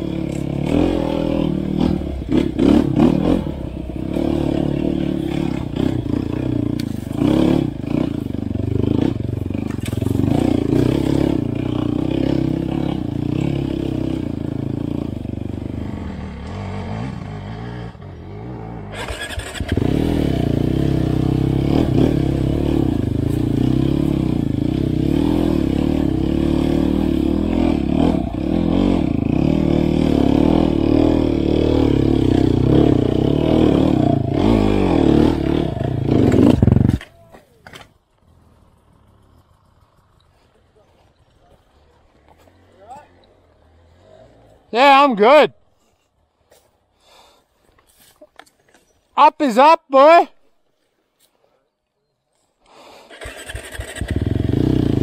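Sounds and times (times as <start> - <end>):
dirt bike engine revving: 0.0 - 37.0, 53.1 - 55.0.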